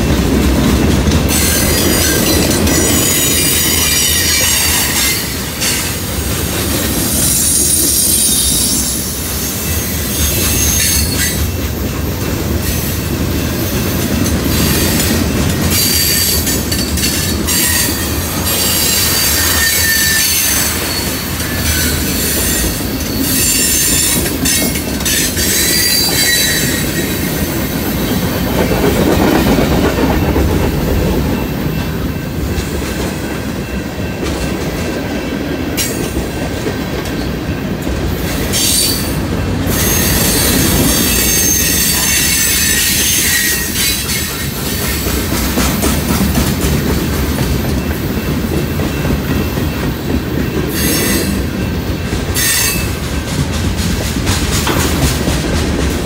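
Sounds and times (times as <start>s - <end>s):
train wheels rumbling on rails: 0.0s - 56.0s
high-pitched wheel squeals: 15.7s - 27.4s.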